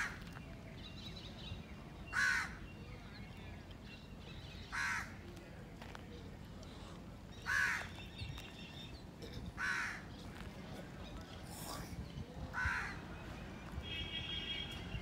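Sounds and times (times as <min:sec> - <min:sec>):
crow cawing: 0:02.2 - 0:02.6, 0:04.7 - 0:05.1, 0:07.5 - 0:07.9, 0:09.6 - 0:10.0.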